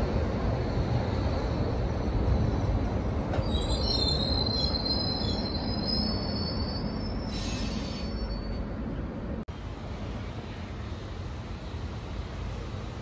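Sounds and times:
train wheels rumbling on rail: 0.0s - 13.0s
high-pitched wheel squeal: 3.3s - 8.7s.

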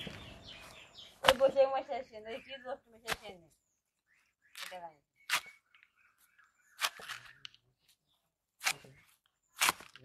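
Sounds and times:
fruit crunching and tearing: 4.6s - 5.7s, 6.8s - 7.4s, 8.6s - 10.0s
knife cutting through fruit: 6.8s - 7.4s, 8.6s - 10.0s.

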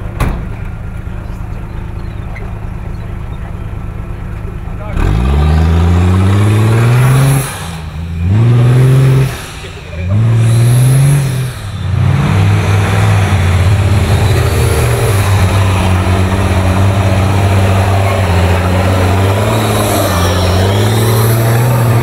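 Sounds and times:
truck engine revving hard: 4.8s - 22.0s.

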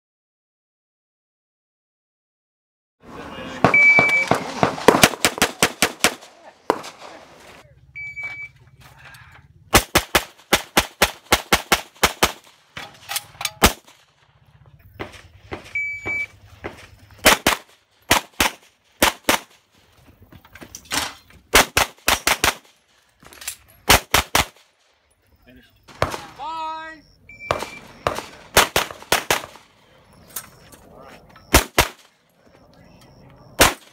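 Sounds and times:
pistol shots: 3.6s - 7.5s, 9.7s - 14.1s, 17.2s - 19.6s, 21.5s - 22.8s, 23.9s - 24.6s, 25.9s - 26.4s, 27.4s - 29.8s, 31.5s - 32.2s, 33.6s - 33.9s
shot timer beep: 3.7s - 4.3s, 8.0s - 8.6s, 15.7s - 16.4s, 27.2s - 28.1s.

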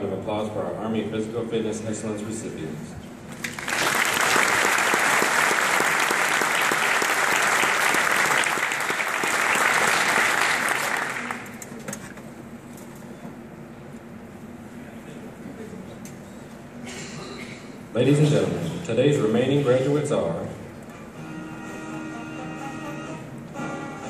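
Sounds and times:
audience applause: 3.4s - 11.6s.

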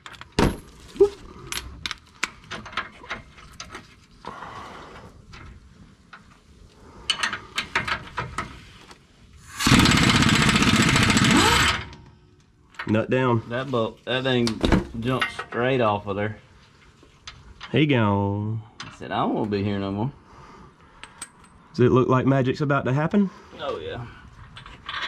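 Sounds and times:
air impact wrench hammering: 9.4s - 12.0s.

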